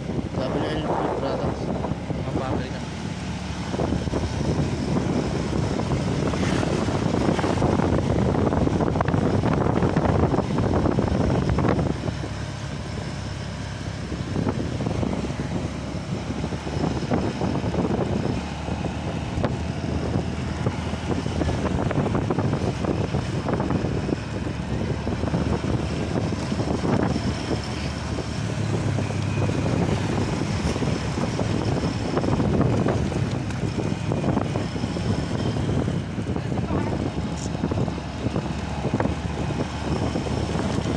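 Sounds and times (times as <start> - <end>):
motorcycle engine running: 0.0 - 40.9
wind buffeting microphone: 0.0 - 40.9.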